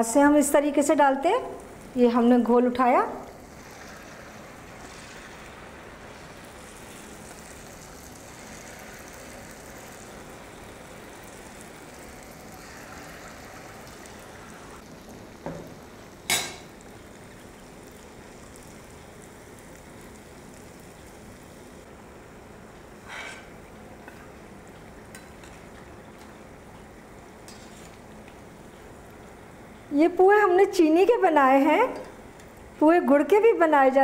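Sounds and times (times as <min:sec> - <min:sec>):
fritters sizzling in hot oil: 0:03.2 - 0:21.9, 0:24.3 - 0:29.5.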